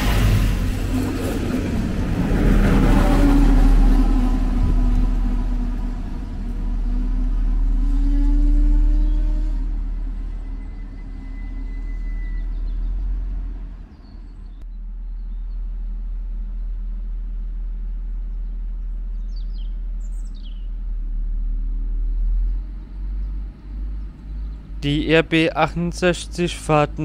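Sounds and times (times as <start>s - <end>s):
high train squeal: 0.0s - 14.6s
diesel train engine rumbling: 0.0s - 27.0s
birds chirping: 10.0s - 15.6s, 19.1s - 20.8s, 22.3s - 27.0s.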